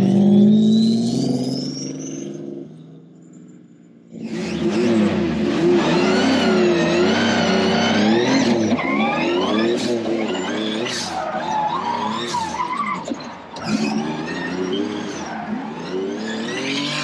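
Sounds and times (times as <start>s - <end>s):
car engine revving: 4.1s - 17.0s.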